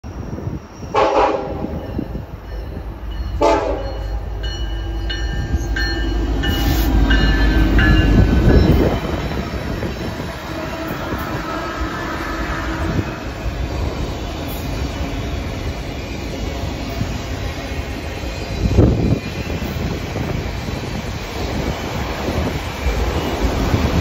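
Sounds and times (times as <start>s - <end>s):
locomotive horn blasts: 1.0s - 1.8s, 3.4s - 4.2s.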